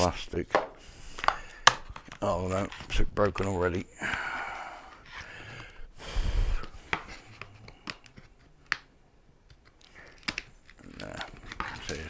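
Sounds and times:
plastic rubbing: 9.5 - 12.0.

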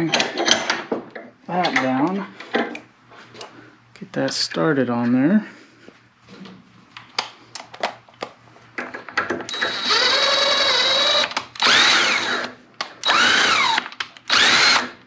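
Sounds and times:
power driver motor whirring: 9.5 - 15.0.

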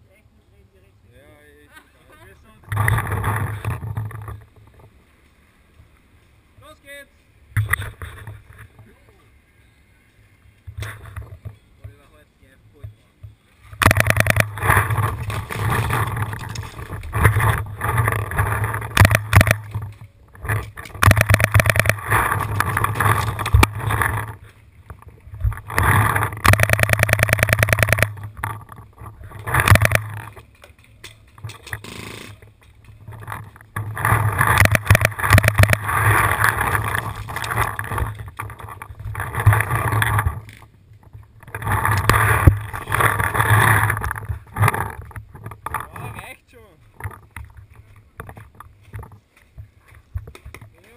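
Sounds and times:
camera knocking and rubbing: 2.7 - 4.9, 13.2 - 46.2, 46.9 - 50.8
player moving: 13.8 - 40.8.

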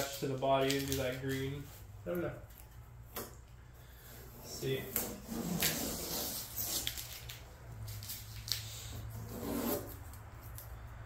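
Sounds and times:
hand scraping tape on metal: 4.0 - 10.8.

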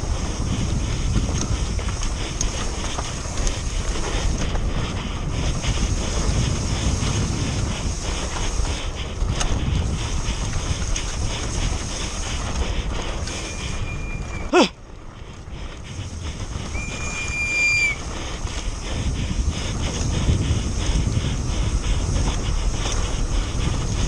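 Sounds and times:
bike chain and frame rattling: 0.0 - 24.0
wind rushing over microphone: 0.0 - 24.0.

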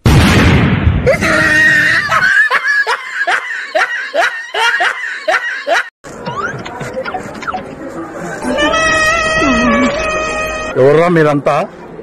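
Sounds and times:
rapid laughter: 2.0 - 5.9.

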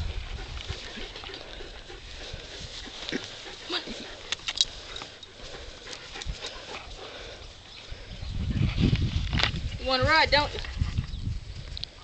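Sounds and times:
dog panting: 0.0 - 8.1
rustles: 0.0 - 12.0.

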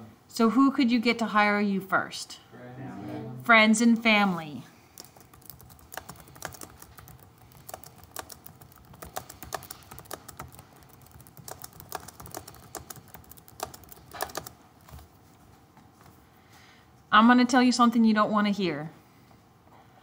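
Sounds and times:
keyboard key clicks: 5.0 - 15.0.

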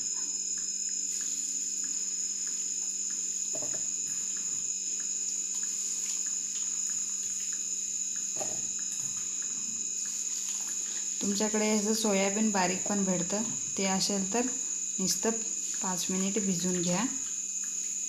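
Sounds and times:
cricket trill: 0.0 - 18.0
water dripping and splashing: 9.1 - 10.9.

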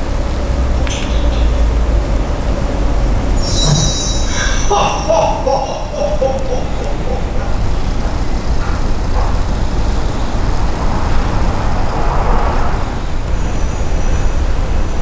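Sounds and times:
low rumbling noise: 0.0 - 15.0
hiss: 3.4 - 8.1.

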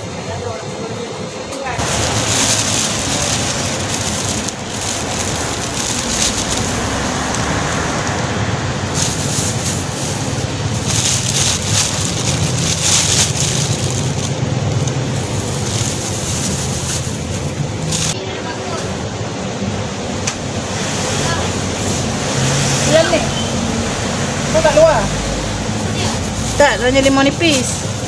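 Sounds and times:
plastic bags crinkling: 1.8 - 18.2.

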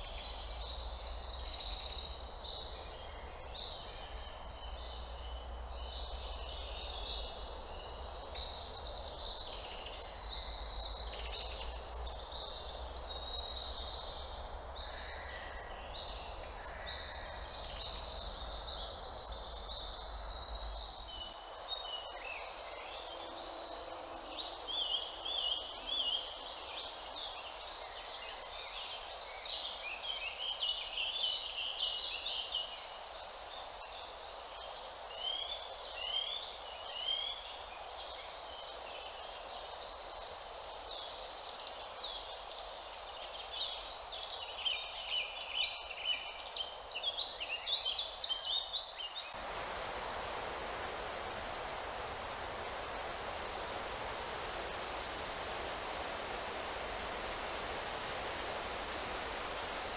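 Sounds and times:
faint steady hum: 49.3 - 59.9.

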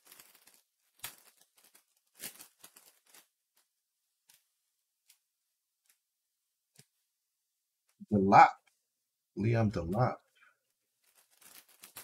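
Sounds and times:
cards and foil wrapper rustling: 0.0 - 6.1, 9.9 - 12.0.

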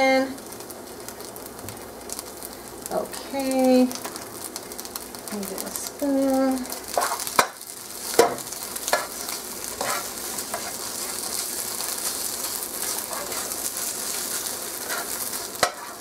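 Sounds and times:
vegetables sizzling in a skillet: 0.0 - 16.0
spoon stirring and scraping: 6.9 - 7.5, 8.9 - 16.0.

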